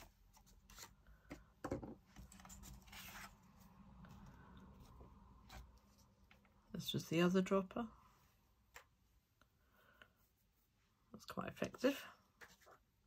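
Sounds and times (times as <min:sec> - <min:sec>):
paper sliding scrape: 0:02.4 - 0:03.4.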